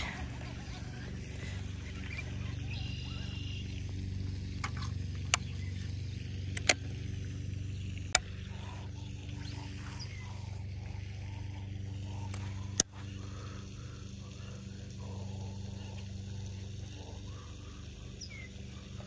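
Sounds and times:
low motor hum: 0.0s - 19.0s
sharp clicks: 4.4s - 10.2s.

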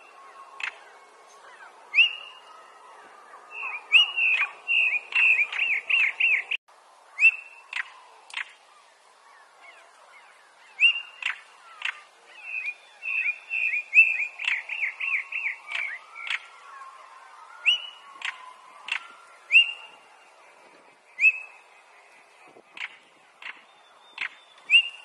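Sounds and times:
bird calling: 0.0s - 6.6s, 7.2s - 25.0s
bird clicking calls: 0.6s - 0.8s, 7.2s - 8.7s, 10.8s - 16.6s, 17.6s - 19.8s, 22.7s - 24.9s
bird whistled notes: 1.5s - 2.5s, 3.5s - 6.6s, 7.2s - 7.9s, 10.8s - 20.0s, 21.2s - 21.7s, 22.8s - 25.0s.

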